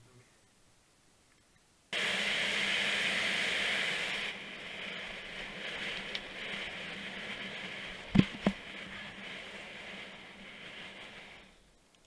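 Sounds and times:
bike tyres rolling on asphalt: 0:02.0 - 0:12.0.

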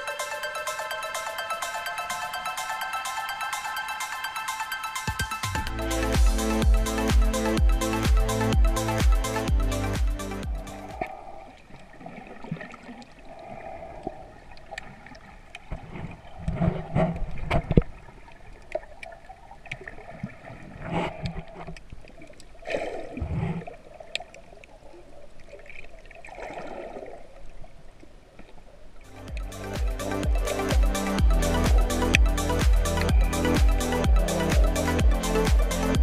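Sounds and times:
water sloshing and gurgling underwater: 0:10.6 - 0:29.5.

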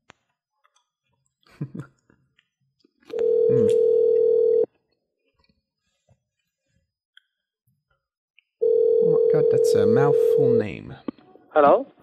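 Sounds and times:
telephone dial tone: 0:03.1 - 0:04.7, 0:08.6 - 0:10.6
faint voice: 0:03.5 - 0:03.8.

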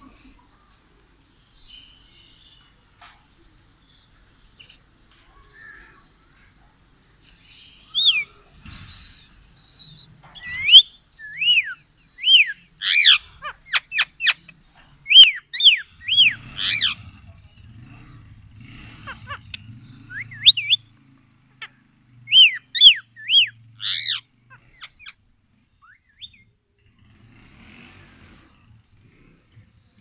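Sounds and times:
parakeet shrill calls: 0:07.9 - 0:08.3, 0:10.4 - 0:14.5, 0:15.1 - 0:17.0, 0:19.0 - 0:20.8, 0:21.6 - 0:25.2.

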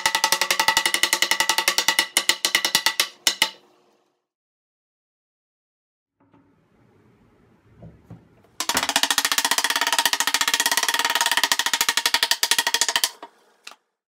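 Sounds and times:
mallet tapping wood: 0:00.0 - 0:03.6.

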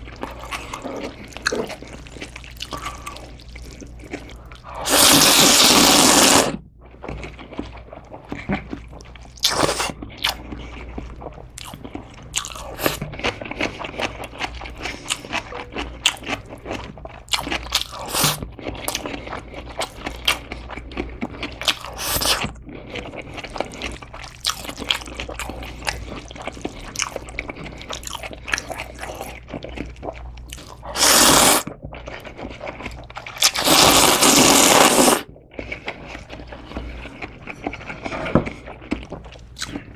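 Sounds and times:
wet chewing: 0:00.0 - 0:39.9
noodle slurping: 0:00.2 - 0:06.6, 0:30.8 - 0:31.7, 0:32.4 - 0:38.7.

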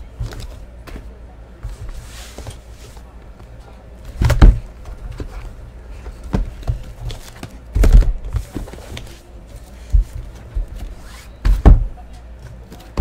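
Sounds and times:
cardboard boxes thumping on table: 0:04.1 - 0:04.7.

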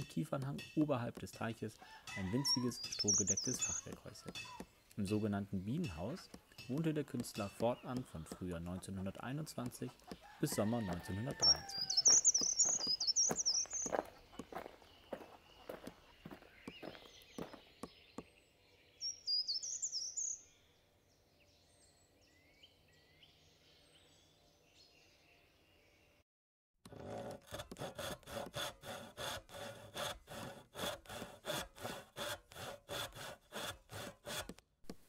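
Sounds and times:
hand saw cutting wood: 0:00.0 - 0:04.7, 0:05.8 - 0:14.7, 0:26.9 - 0:34.6
songbird singing: 0:00.0 - 0:26.2.

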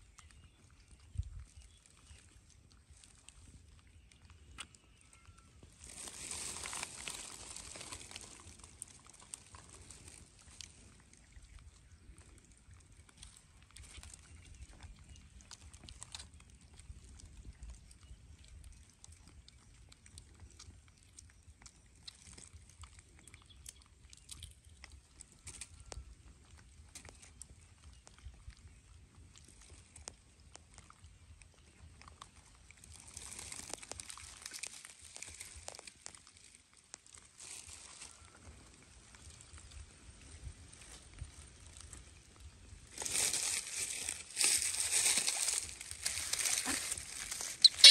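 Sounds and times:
dry leaves crackling: 0:05.6 - 0:11.4, 0:32.8 - 0:39.5, 0:40.8 - 0:47.9.

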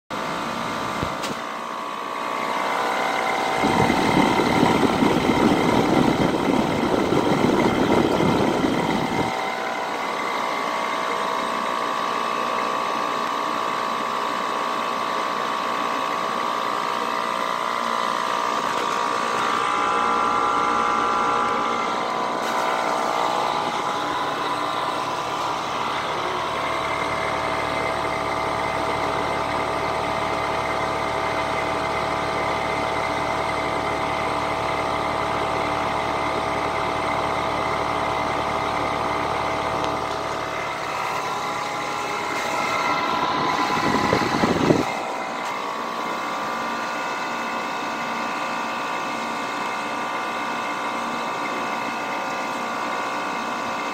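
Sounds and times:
heat pump fan whirring hum: 0:00.1 - 0:53.9
deeper hum: 0:00.9 - 0:11.2, 0:18.1 - 0:47.5.

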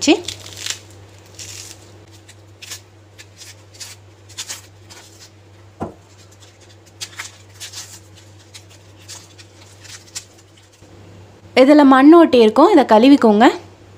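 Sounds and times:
steady low hum: 0:00.0 - 0:13.9
fibrous skin ripping by hand: 0:00.2 - 0:05.3.

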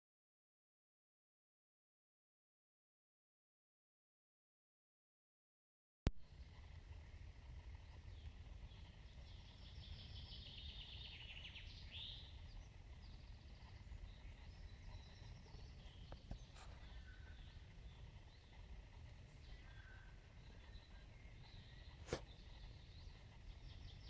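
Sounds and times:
soft bird calls: 0:06.2 - 0:24.0
wind noise rumble: 0:06.2 - 0:24.0
bird trilling: 0:09.5 - 0:24.0.

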